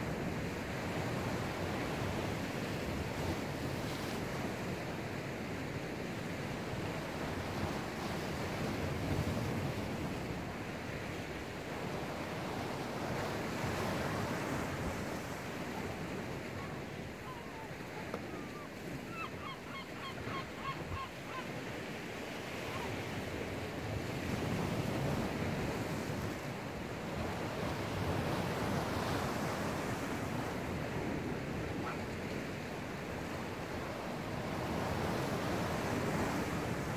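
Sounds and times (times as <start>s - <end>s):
sea surf washing: 20.7s - 36.9s.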